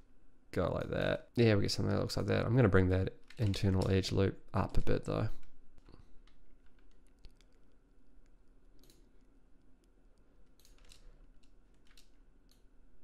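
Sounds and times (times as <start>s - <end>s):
mouse and keyboard clicks: 6.2s - 7.8s, 8.7s - 9.1s, 9.8s - 12.6s.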